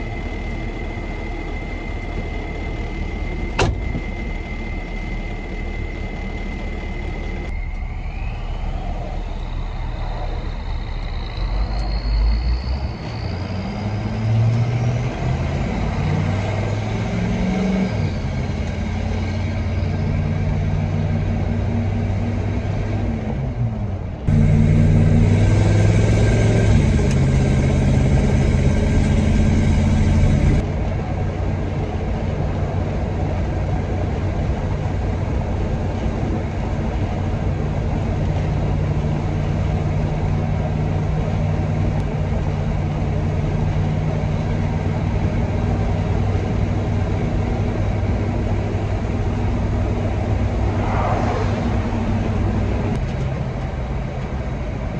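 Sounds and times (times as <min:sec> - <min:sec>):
truck engine running: 0:24.3 - 0:36.0.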